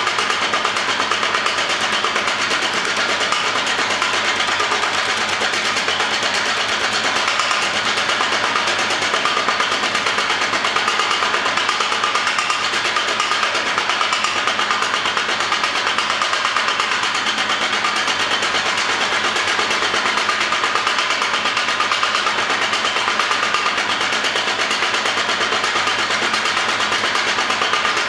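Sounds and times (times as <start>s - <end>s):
power hammer striking: 0.0s - 28.0s.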